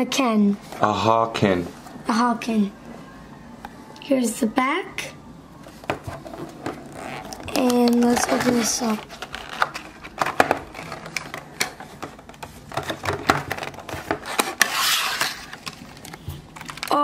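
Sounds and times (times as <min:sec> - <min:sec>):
plastic blister pack crackling: 0:06.3 - 0:17.0
plastic crinkling rustle: 0:06.8 - 0:17.0.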